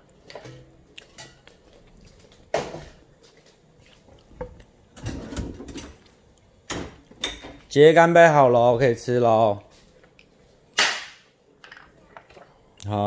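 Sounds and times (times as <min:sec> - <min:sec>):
cookware and utensils clinking: 0:00.2 - 0:01.7, 0:06.8 - 0:07.7.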